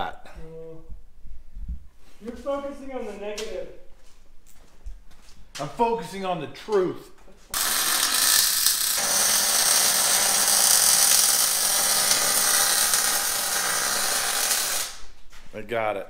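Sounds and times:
grinder cutting steel: 7.5s - 15.2s.

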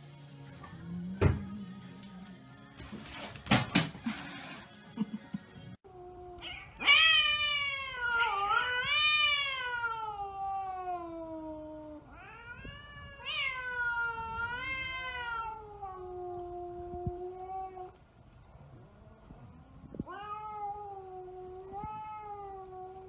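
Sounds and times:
cat yowling: 6.0s - 18.0s.

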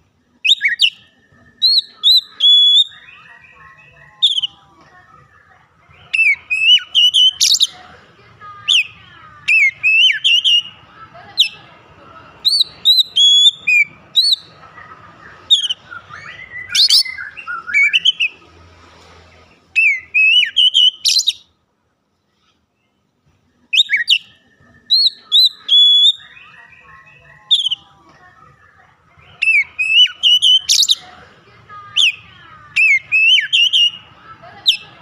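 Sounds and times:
bird singing whistled phrases: 0.4s - 3.6s, 4.2s - 4.6s, 6.0s - 7.7s, 9.5s - 10.8s, 12.4s - 14.5s, 15.4s - 18.4s, 19.8s - 21.5s, 23.7s - 27.9s, 29.4s - 31.0s, 32.8s - 34.1s.

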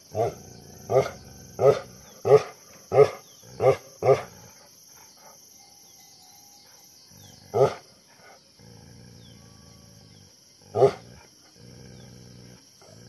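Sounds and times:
dog barking heavily: 0.2s - 4.3s, 10.8s - 11.0s.

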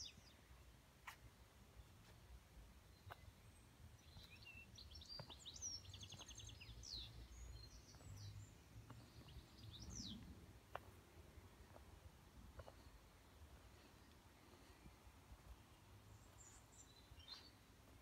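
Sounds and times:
bird trills and chirps: 2.9s - 10.9s, 16.1s - 17.6s.

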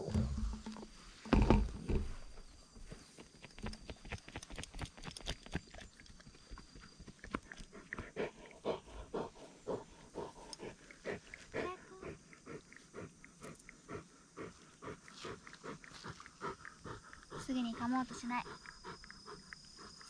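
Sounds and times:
dog panting: 7.0s - 20.0s.

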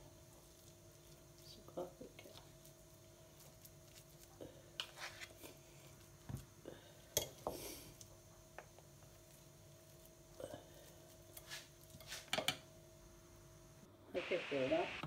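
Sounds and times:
spoon and fork scraping bowl: 11.4s - 12.6s
faint hum: 12.6s - 15.0s.

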